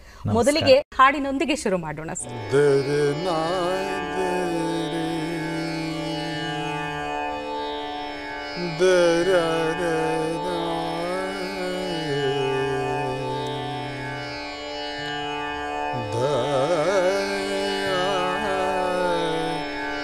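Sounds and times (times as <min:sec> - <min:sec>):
man singing: 0:02.2 - 0:07.3, 0:08.6 - 0:14.4, 0:16.0 - 0:19.8
steady drone: 0:02.2 - 0:20.0.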